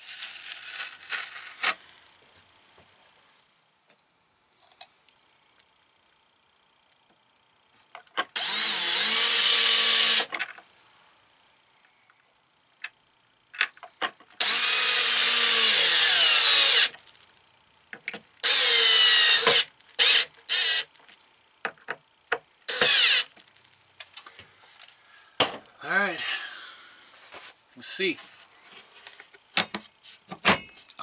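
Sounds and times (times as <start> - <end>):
cordless drill running: 8.3 - 10.3, 14.4 - 17.0, 18.4 - 20.9, 22.7 - 23.4.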